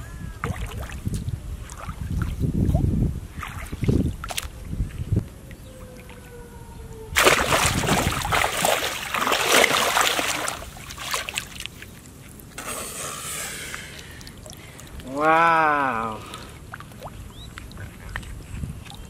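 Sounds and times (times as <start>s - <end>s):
splashing in shallow water: 0.4s - 4.6s, 7.2s - 19.0s
person exclaiming: 15.0s - 16.3s.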